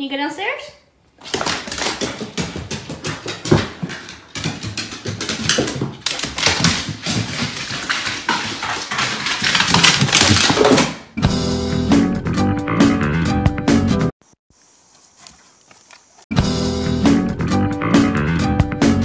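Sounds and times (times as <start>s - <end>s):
dog claws clattering on wooden stairs: 1.2s - 11.0s.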